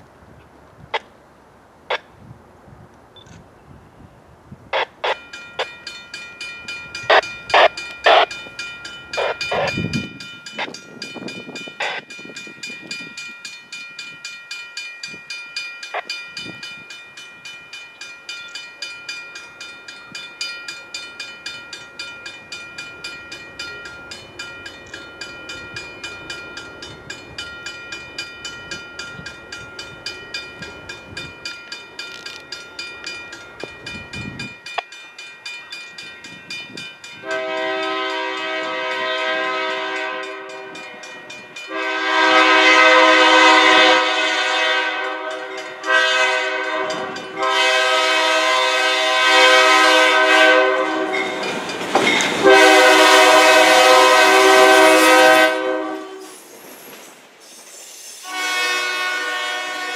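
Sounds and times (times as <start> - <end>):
railroad crossing bell ringing: 4.8 - 56.3.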